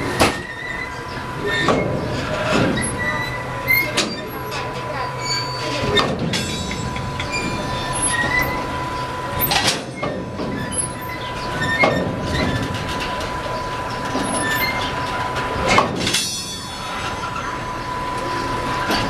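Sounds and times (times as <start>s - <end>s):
train wheels rumbling on rails: 0.0s - 19.0s
wheels squealing: 0.0s - 19.0s
metallic clanks: 5.6s - 17.5s.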